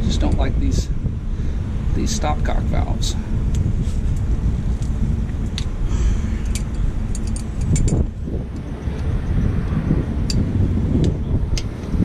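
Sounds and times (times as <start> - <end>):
wind buffeting microphone: 0.0 - 12.0
wrench metallic clicks: 6.4 - 8.0.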